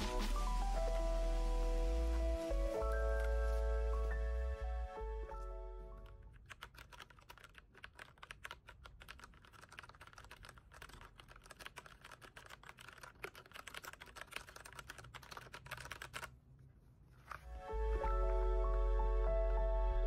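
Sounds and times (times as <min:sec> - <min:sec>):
mechanical keyboard typing: 0:05.9 - 0:16.3.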